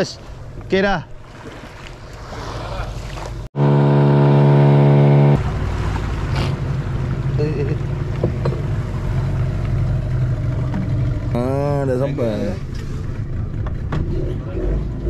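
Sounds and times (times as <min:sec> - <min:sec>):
boat engine running: 0:02.9 - 0:15.0
loud horn-like tone: 0:03.6 - 0:05.4.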